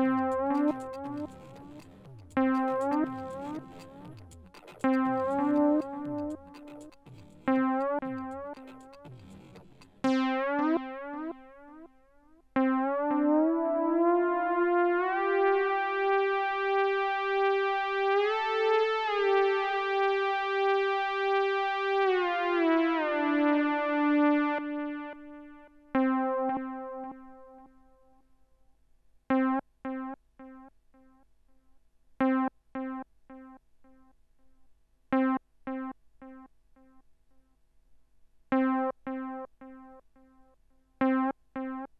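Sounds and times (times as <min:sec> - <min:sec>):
synthesizer playing: 0:00.0 - 0:11.4.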